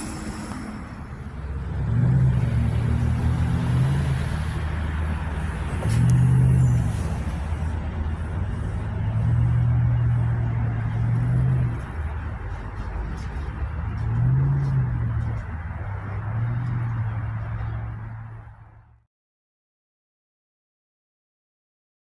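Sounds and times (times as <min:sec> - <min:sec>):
electric train humming: 0:00.0 - 0:14.5
train rumble: 0:00.0 - 0:18.7.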